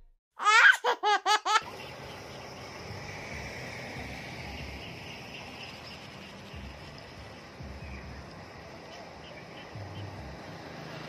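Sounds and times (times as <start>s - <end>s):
insect trill: 1.6s - 10.2s.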